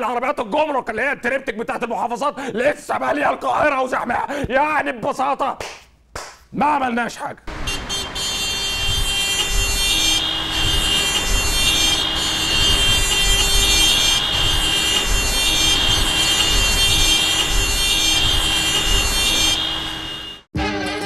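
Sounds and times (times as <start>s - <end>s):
engines rumbling: 7.5s - 20.4s
car horns sounding: 7.5s - 20.5s.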